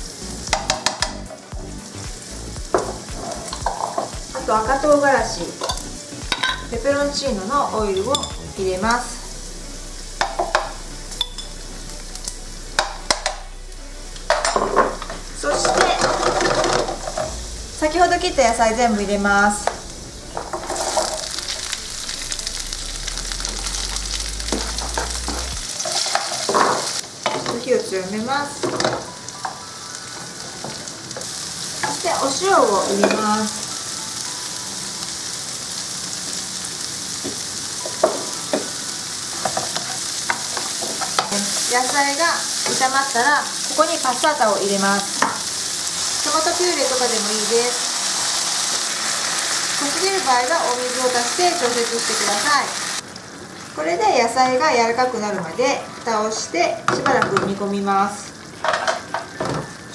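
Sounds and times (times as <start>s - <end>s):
food sizzling in a frying pan: 0.0s - 59.9s
wooden spatula knocking pan: 0.5s - 1.2s
spoon clattering on pan: 5.6s - 6.6s.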